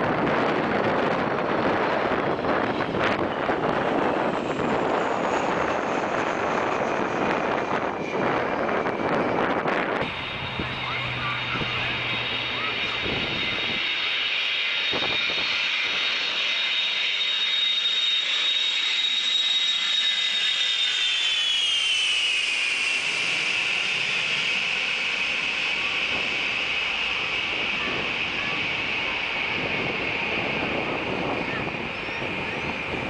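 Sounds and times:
jet plane engines whining overhead: 0:00.0 - 0:33.0.

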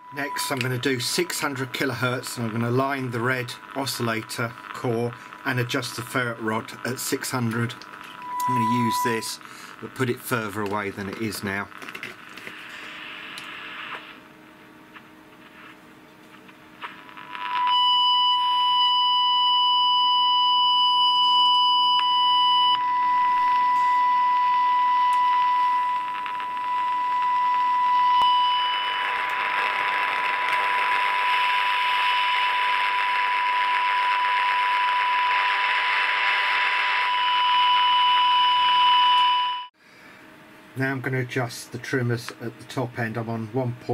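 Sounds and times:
high test tone from radio speaker: 0:00.0 - 0:14.3, 0:14.9 - 0:39.8
radio hiss: 0:00.0 - 0:17.8, 0:25.3 - 0:37.6.

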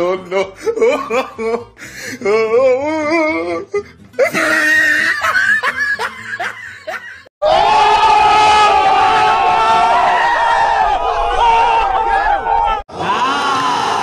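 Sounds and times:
laughter: 0:00.0 - 0:01.7, 0:04.2 - 0:07.3
music: 0:00.0 - 0:07.3.

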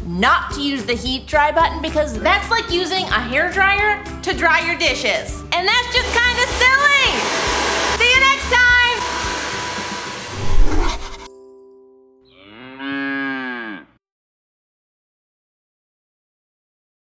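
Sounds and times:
hair dryer blowing: 0:06.0 - 0:11.3.

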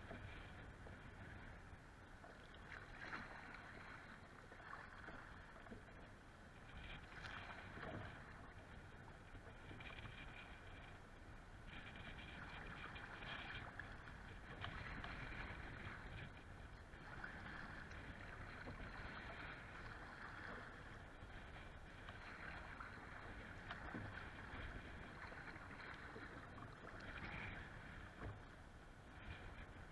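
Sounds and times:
low wind rumble: 0:00.0 - 0:29.9.

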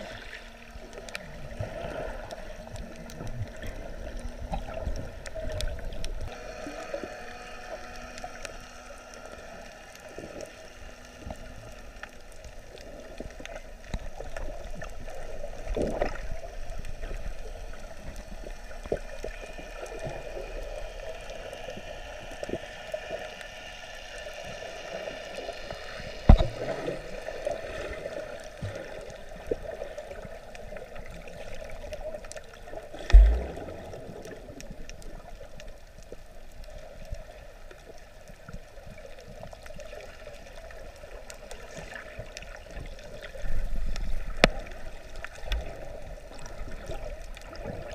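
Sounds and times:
underwater watery rush: 0:00.0 - 0:47.9
faint clicks: 0:02.1 - 0:47.8
sharp thumps: 0:33.1 - 0:34.0.

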